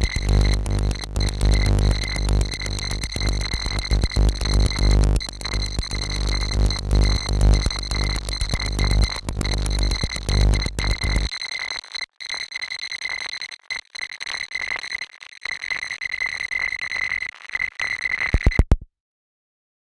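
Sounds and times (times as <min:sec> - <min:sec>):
crackling hiss: 0:00.0 - 0:11.3.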